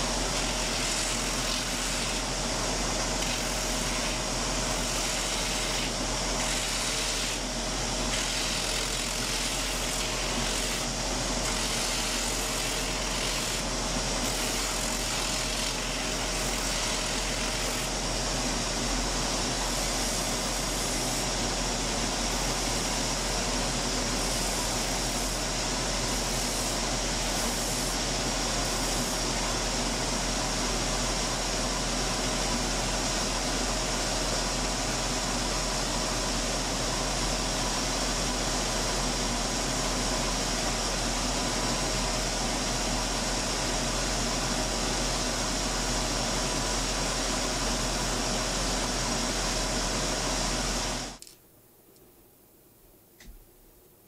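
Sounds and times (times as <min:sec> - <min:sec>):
sanding machine humming: 0:00.0 - 0:30.4.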